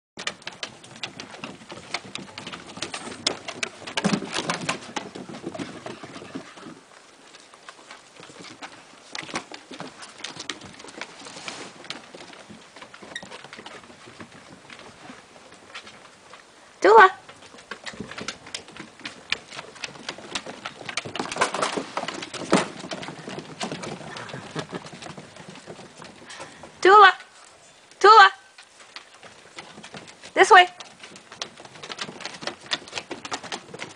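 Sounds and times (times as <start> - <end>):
puppy claws on wooden boards: 0.2 - 16.6, 17.2 - 33.9
dog paws scrabbling on wooden deck: 0.2 - 33.9.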